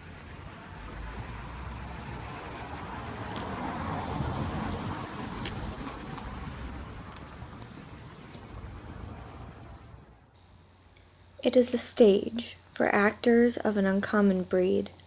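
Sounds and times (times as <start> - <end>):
vehicle passing: 0.0 - 10.4.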